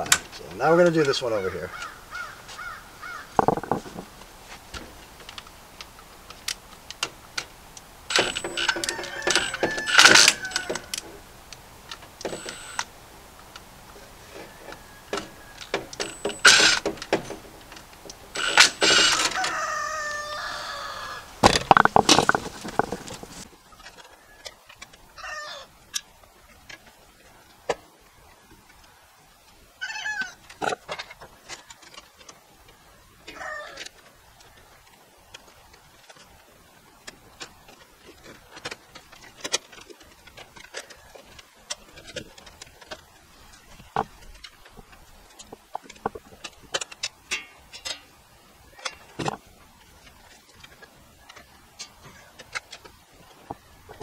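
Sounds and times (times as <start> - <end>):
birds calling: 0.0 - 25.8
metallic clatter of tools: 46.8 - 48.1.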